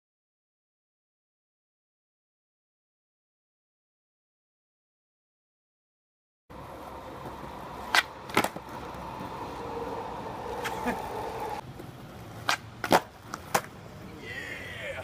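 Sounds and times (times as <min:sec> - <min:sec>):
skateboard wheels rolling on concrete: 0:06.5 - 0:15.0
skateboard tail clacking: 0:06.7 - 0:13.9
skateboard wheels landing: 0:07.2 - 0:09.4, 0:10.5 - 0:13.8.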